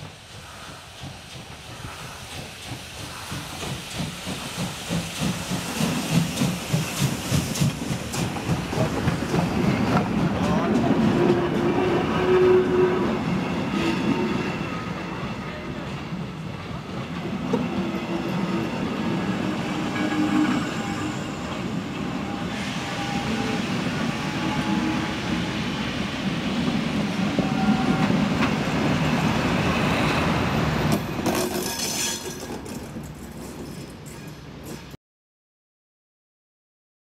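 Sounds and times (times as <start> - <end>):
train wheels rumbling on rails: 0.0 - 35.0.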